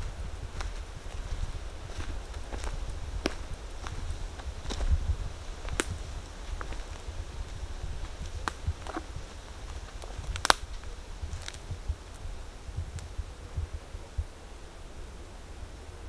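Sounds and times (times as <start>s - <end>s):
steady low rumble: 0.0s - 16.0s
dry twigs cracking: 0.6s - 12.3s.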